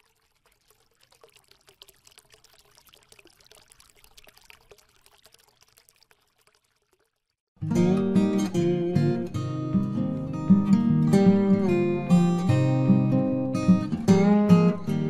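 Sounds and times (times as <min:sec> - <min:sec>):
strummed guitar music: 0:07.6 - 0:15.0.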